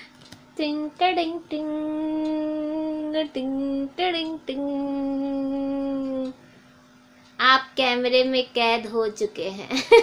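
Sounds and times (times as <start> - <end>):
person singing long held notes: 0.6 - 6.4.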